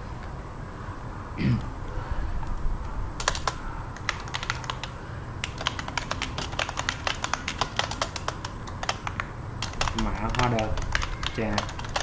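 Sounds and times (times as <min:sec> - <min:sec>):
typing on computer keyboard: 0:03.2 - 0:12.0.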